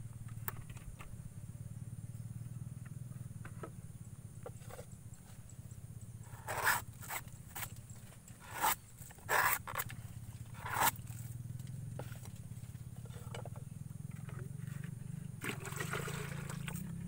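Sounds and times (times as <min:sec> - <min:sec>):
steady low hum: 0:00.0 - 0:17.0
knife scraping bamboo tube: 0:06.3 - 0:07.7, 0:08.4 - 0:09.9, 0:10.5 - 0:11.1.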